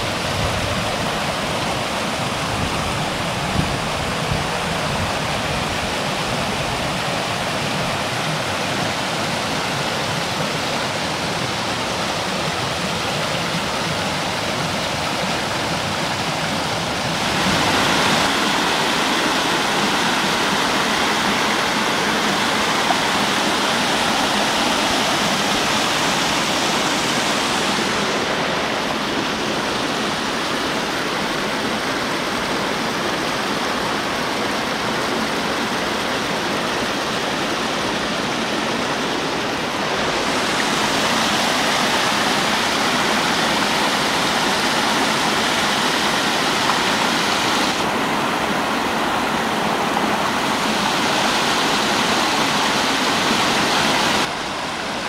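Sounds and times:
water rushing over rocks: 0.0 - 55.0.

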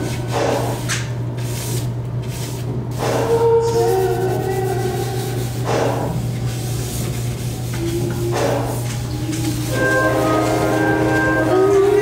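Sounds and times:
background music with singing: 7.8 - 12.0.

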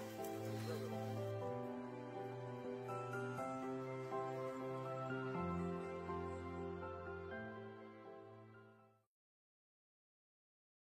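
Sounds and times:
soft background music: 0.0 - 9.1.

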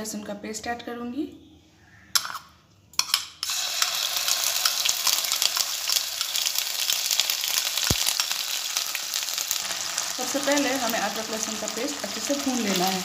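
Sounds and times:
paste sizzling in hot oil: 3.4 - 13.0.

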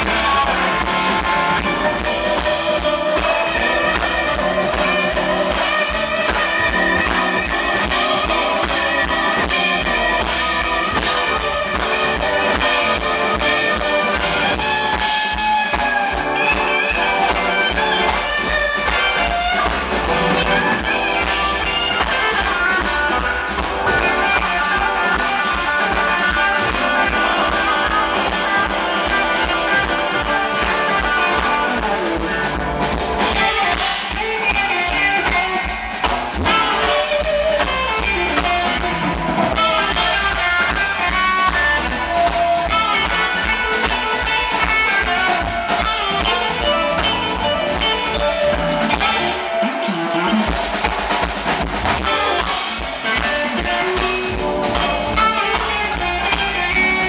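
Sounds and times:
saxophone: 0.0 - 51.0, 51.8 - 57.0
bass: 0.0 - 57.0
drums: 0.0 - 57.0
electric guitar lead: 0.0 - 57.0
keyboards: 0.0 - 57.0.

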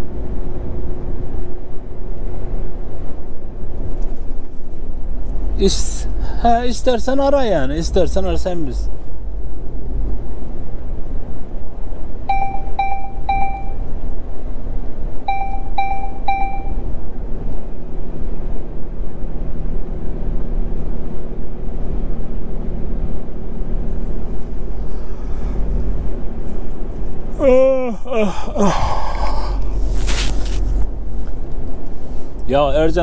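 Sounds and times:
truck engine and road rumble: 0.0 - 33.0
short electronic beeps: 12.3 - 13.8, 15.3 - 16.8.

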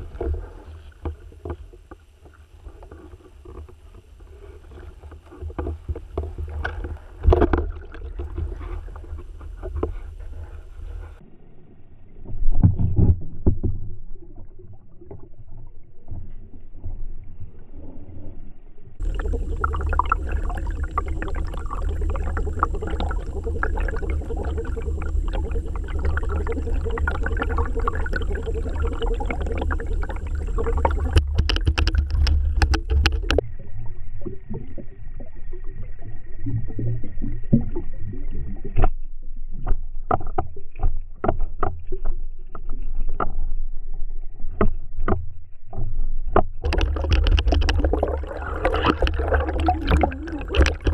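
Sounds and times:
underwater knocks and clicks: 0.0 - 10.6, 12.3 - 17.0, 19.0 - 33.4, 36.5 - 50.9
underwater water movement: 0.0 - 11.4, 12.0 - 50.9
steady low rumble: 16.6 - 37.2, 46.6 - 50.9
faint high whine: 17.5 - 38.3.

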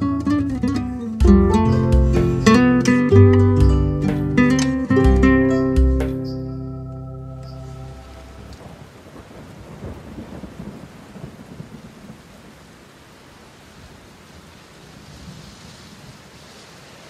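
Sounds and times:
guitar chord: 0.0 - 8.7.

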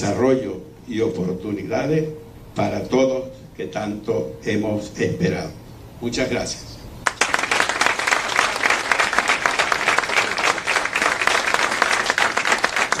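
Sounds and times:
audience applauding: 7.0 - 13.0.

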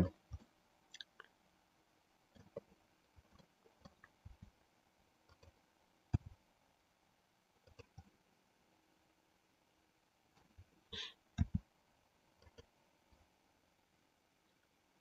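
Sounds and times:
mouse and keyboard clicks: 7.7 - 8.1.

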